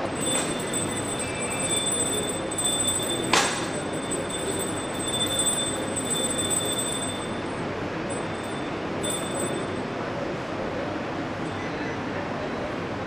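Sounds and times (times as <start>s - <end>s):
brass hand bell ringing: 0.0s - 9.9s.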